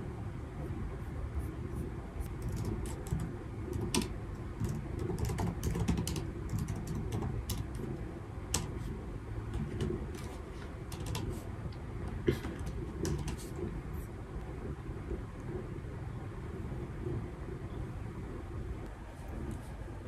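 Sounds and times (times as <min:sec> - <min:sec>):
low steady rumble: 0:00.0 - 0:20.0
laptop keyboard clicks: 0:02.4 - 0:07.8, 0:10.9 - 0:11.3.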